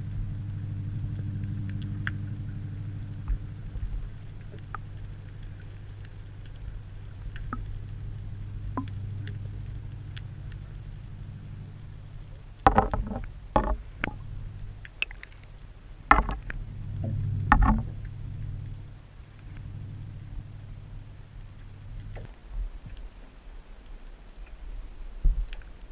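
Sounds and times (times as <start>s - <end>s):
low underwater hum: 0.0s - 25.9s
sharp knocks and bumps: 12.7s - 13.8s, 16.1s - 16.5s.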